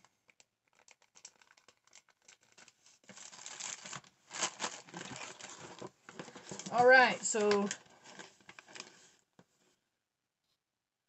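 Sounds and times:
paper and packaging rustling: 0.0 - 9.3.

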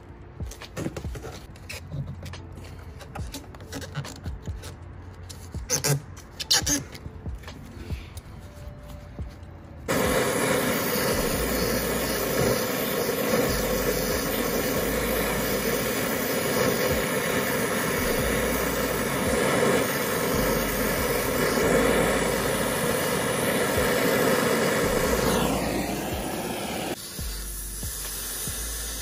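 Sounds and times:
brazing torch flame burning: 9.9 - 29.0.

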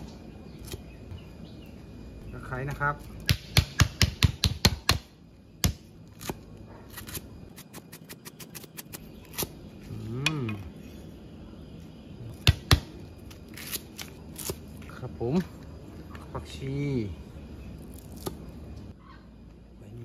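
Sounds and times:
hum-like voice: 9.8 - 10.9.

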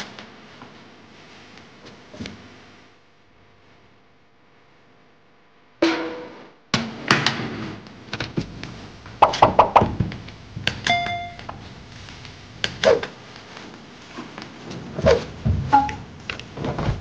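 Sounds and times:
short ringing chime: 10.9 - 11.4.

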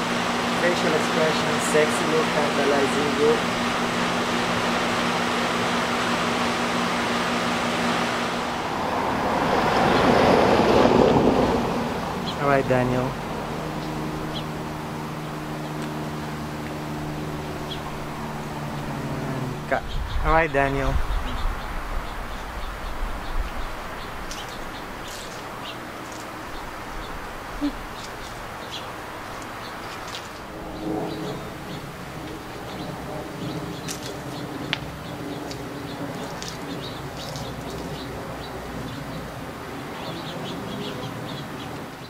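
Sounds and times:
steady low hum: 0.0 - 41.9
car passing close by: 7.8 - 20.4
small birds chirping: 12.1 - 42.0.

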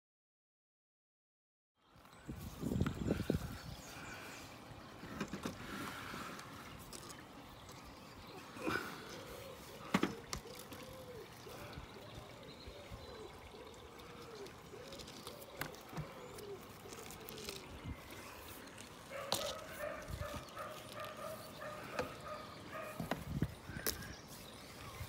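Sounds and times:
handling and rubbing noises: 14.8 - 25.0.

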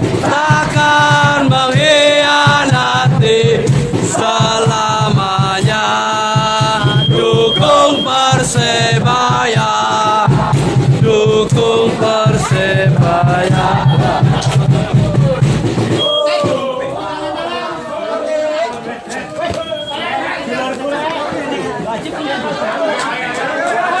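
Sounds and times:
rhythmic drum hits: 0.0 - 17.4
crowd chanting and singing: 0.0 - 24.0.

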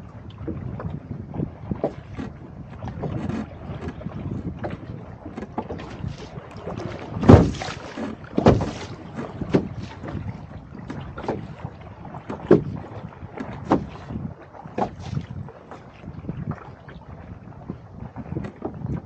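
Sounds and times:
water slapping against a canoe: 0.0 - 19.0
wind rushing on microphone: 0.0 - 19.0.

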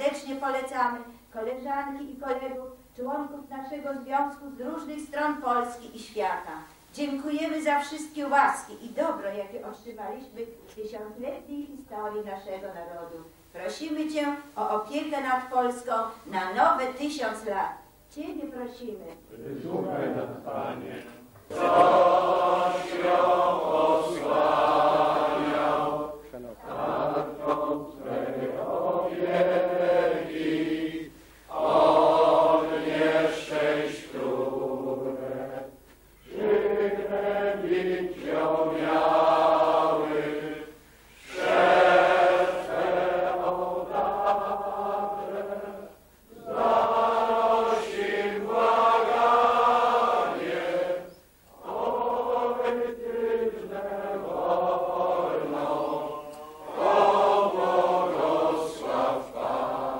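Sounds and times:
congregation singing a hymn: 19.1 - 59.9.

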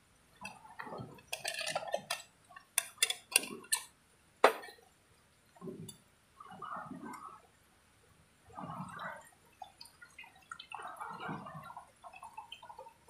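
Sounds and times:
metal cup clinking: 1.2 - 4.8
metal cup clanking on stove: 4.4 - 4.8.

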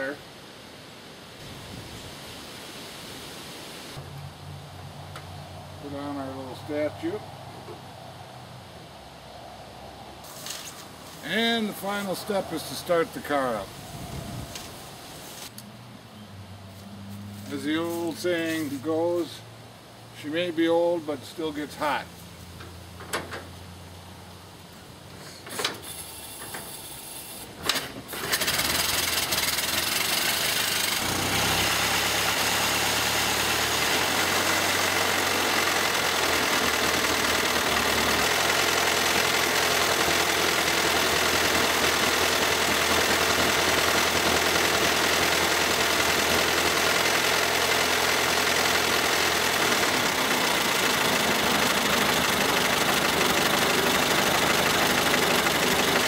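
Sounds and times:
engine running steadily: 24.8 - 56.0
engine being hand-cranked: 27.7 - 56.0.

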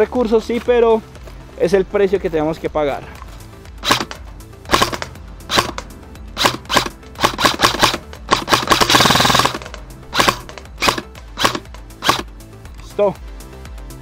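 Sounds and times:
airsoft rifle full-auto burst: 3.8 - 5.8, 6.4 - 12.3
airsoft rifle single shots: 3.8 - 12.3.

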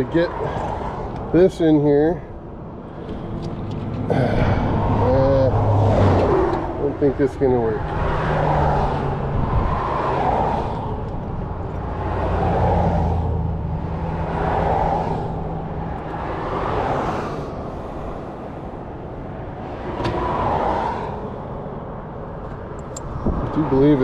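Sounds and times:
low traffic rumble: 0.0 - 24.0
vehicles passing: 0.0 - 24.0.

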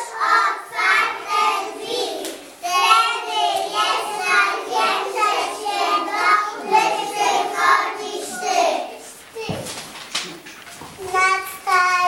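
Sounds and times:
children singing: 0.0 - 9.6.

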